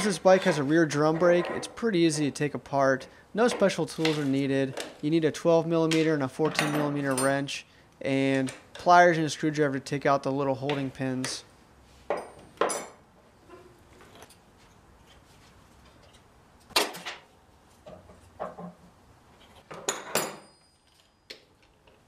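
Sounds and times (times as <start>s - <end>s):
hand tools clinking on metal: 5.9s - 7.5s.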